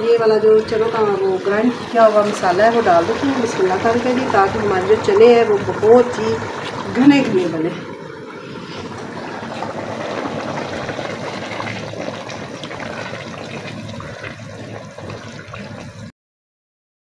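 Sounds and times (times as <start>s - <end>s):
curry bubbling and sloshing: 0.0s - 16.1s.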